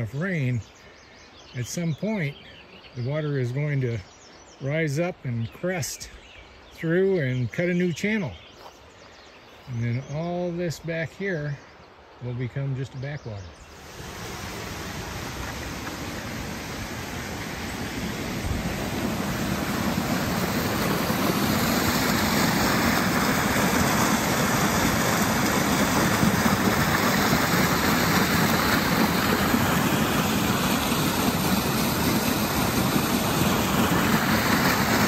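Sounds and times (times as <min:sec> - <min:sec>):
small waterfall rushing: 0:13.6 - 0:35.0.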